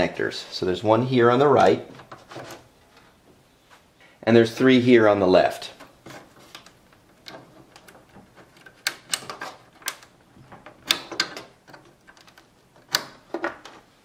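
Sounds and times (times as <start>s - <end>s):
plastic connectors clicking and rattling: 5.8s - 13.8s.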